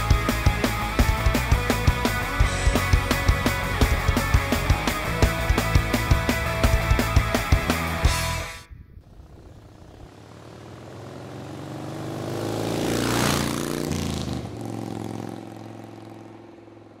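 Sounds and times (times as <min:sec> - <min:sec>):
motorcycle passing by: 0:09.0 - 0:17.0.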